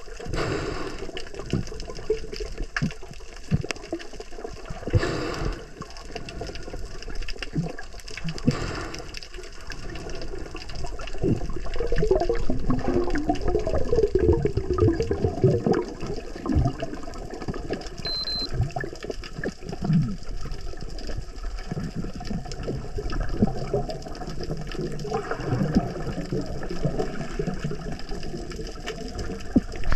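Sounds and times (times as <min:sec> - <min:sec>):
underwater sloshing and bubbling: 0:00.0 - 0:29.9.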